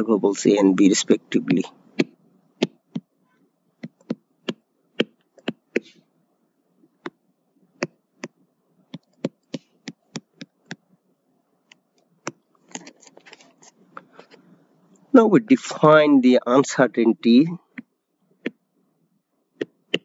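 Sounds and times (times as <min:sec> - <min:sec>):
faint background hiss: 0:00.0 - 0:20.0
stylus tapping on tablet: 0:02.0 - 0:03.1, 0:03.8 - 0:06.0, 0:07.0 - 0:07.2, 0:07.8 - 0:11.0, 0:17.7 - 0:18.6, 0:19.6 - 0:20.0.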